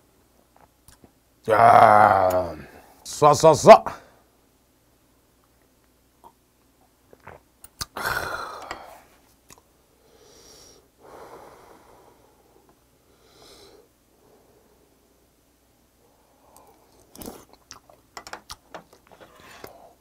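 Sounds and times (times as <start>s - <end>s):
man's raspy exhale: 8.0s - 9.0s.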